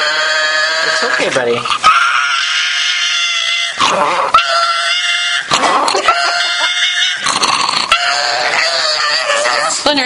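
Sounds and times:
dog grumbling growl: 3.8s - 4.5s, 5.4s - 10.0s.

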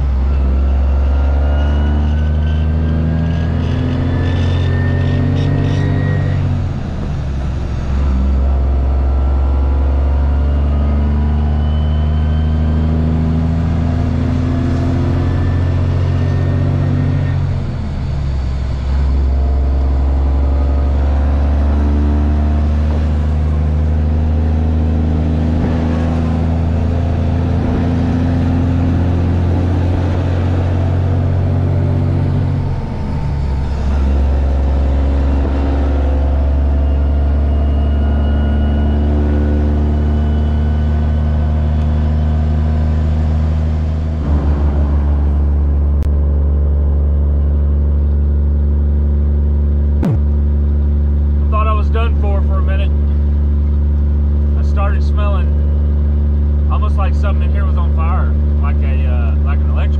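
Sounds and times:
diesel engine droning: 0.0s - 59.9s
road and tyre noise: 0.0s - 59.9s.

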